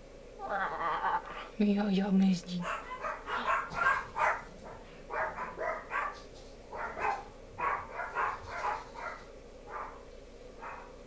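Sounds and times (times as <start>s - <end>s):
woman making meow-like calls: 0.4s - 1.5s.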